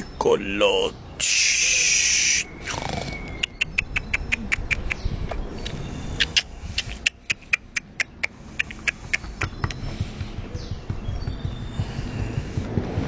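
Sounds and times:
animal making sharp clicks: 2.7s - 10.4s.

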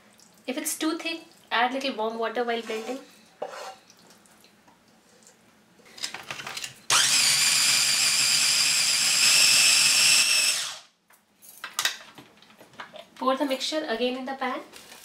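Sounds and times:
food chopper motor whining: 6.9s - 10.9s.

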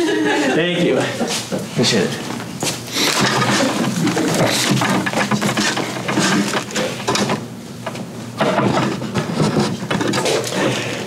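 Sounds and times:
papers rustling: 2.3s - 7.4s.

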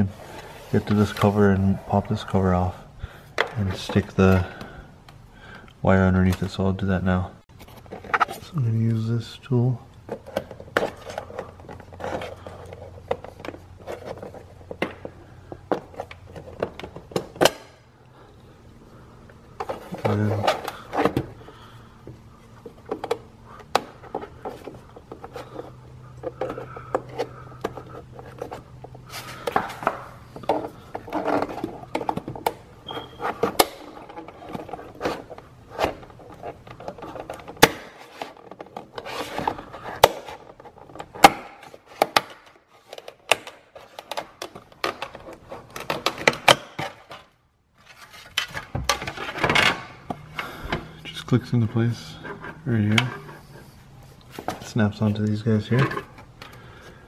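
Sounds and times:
plastic scraping and rubbing: 7.5s - 8.6s, 10.0s - 17.4s, 19.5s - 57.0s.

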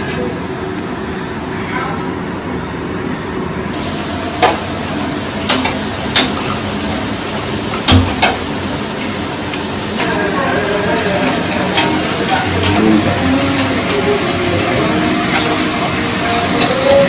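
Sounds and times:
food sizzling in a wok: 3.8s - 17.0s.

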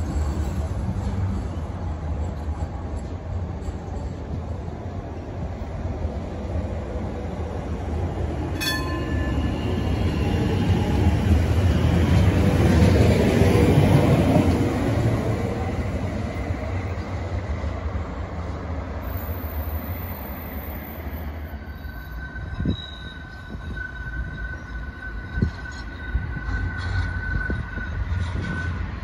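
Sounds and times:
tram rumbling past on rails: 0.0s - 29.0s
sharp metallic clank: 8.6s - 9.4s.

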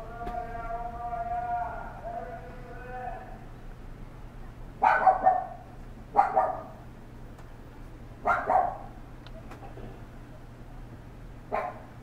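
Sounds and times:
dog barking: 4.8s - 6.8s, 8.2s - 8.9s, 11.5s - 12.0s.

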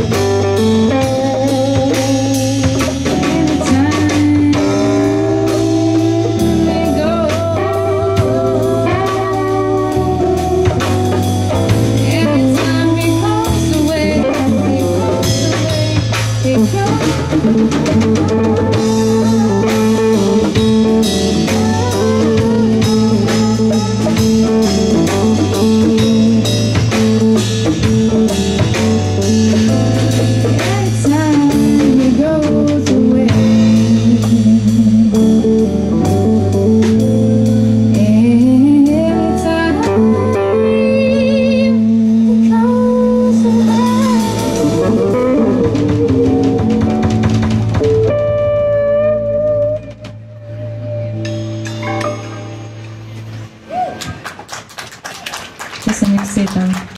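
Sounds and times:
low bass line: 0.0s - 53.9s
keyboard: 0.0s - 54.4s
drum kit: 0.0s - 56.9s
electric guitar: 0.0s - 56.9s
woman singing: 0.9s - 11.2s, 12.0s - 27.3s, 30.5s - 35.4s, 37.9s - 47.1s.

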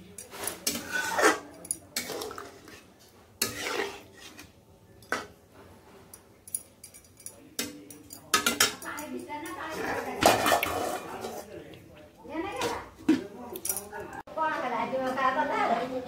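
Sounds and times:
steel utensils clinking on pots: 0.0s - 5.4s, 6.0s - 11.5s, 12.5s - 13.9s.

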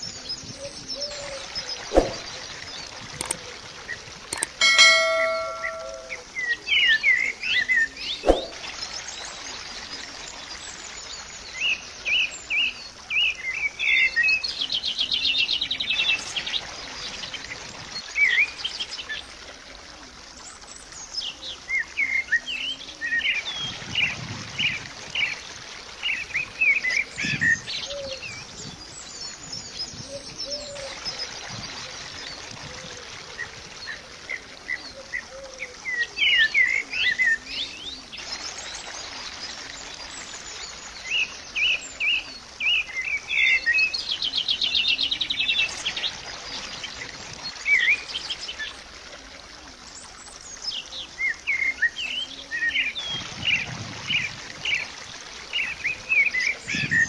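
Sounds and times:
birds chirping and whistling: 0.7s - 2.4s
sharp click: 2.0s - 2.2s, 4.4s - 6.1s
bird trill: 4.4s - 6.4s.

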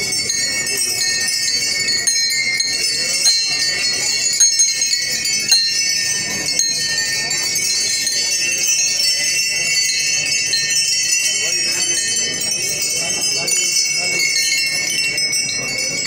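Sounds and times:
many bells jingling and ringing: 0.0s - 16.0s
murmur of voices: 0.0s - 16.0s
sharp bell strikes: 0.0s - 16.0s.

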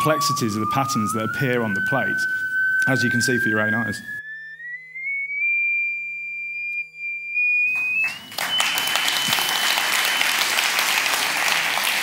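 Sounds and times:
high pure tone: 0.0s - 10.7s
audience applause: 7.7s - 12.0s.

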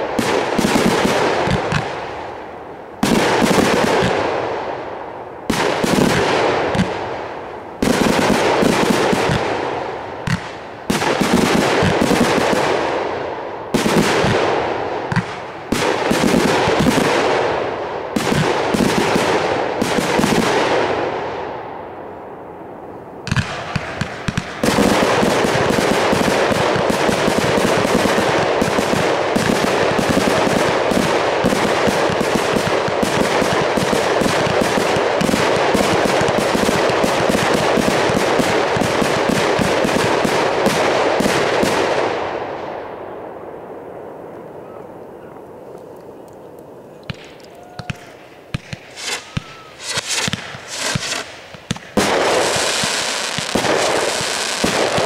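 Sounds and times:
fireworks volleys and popping: 23.3s - 41.8s, 47.0s - 55.0s.

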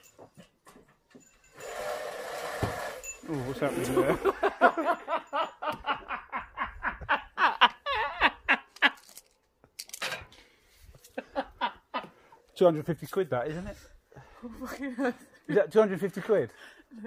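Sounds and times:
woman laughing: 3.8s - 9.0s.

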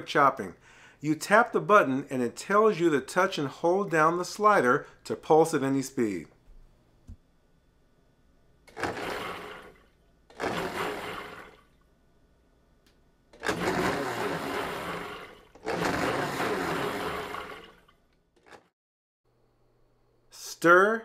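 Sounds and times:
blender motor pulsing: 8.7s - 11.7s, 13.4s - 18.6s.

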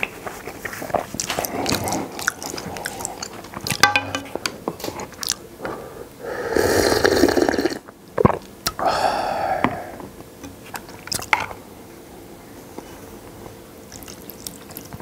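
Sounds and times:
chewing sounds: 0.1s - 3.8s, 4.8s - 5.4s, 10.7s - 11.4s, 13.9s - 15.0s
person slurping soup: 6.2s - 7.9s.

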